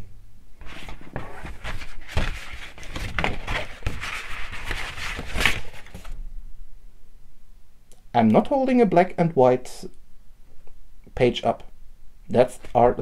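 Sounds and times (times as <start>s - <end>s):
cardboard rustling and scraping: 0.6s - 6.2s.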